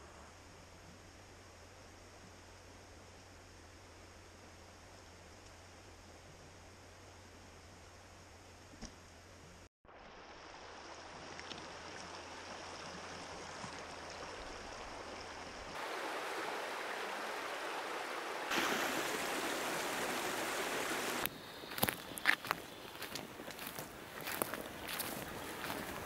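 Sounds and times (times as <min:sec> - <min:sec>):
stream running over stones: 0:09.9 - 0:26.0.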